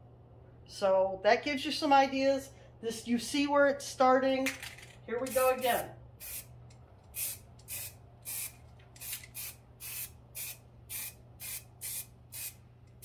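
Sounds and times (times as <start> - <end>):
spray paint can hissing bursts: 5.3 - 6.5, 7.1 - 12.6.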